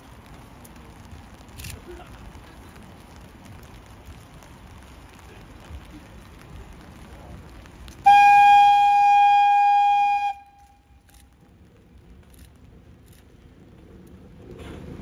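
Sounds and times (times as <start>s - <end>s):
locomotive horn blast: 8.0s - 10.8s.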